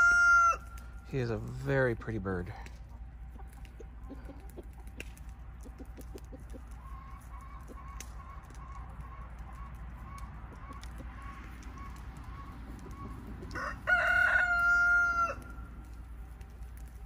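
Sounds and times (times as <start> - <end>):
rooster crowing: 0.0 - 0.8, 13.5 - 15.6
hens clucking softly: 2.8 - 13.6.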